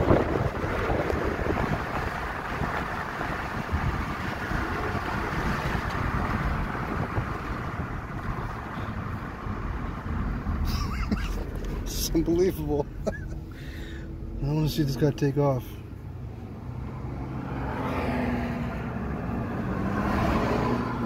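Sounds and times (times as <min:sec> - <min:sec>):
wind rush: 0:00.0 - 0:10.6
road rumble: 0:00.0 - 0:21.0.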